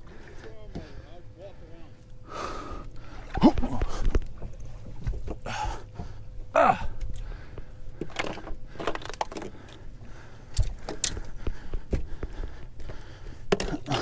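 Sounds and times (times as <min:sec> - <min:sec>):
knocks and scuffs on boat deck: 0:11.4 - 0:12.4.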